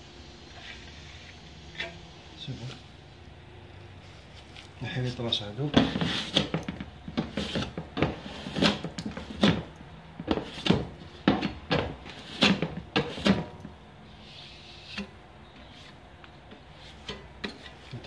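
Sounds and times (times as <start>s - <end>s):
metal scraper scraping wall: 5.6s - 16.0s.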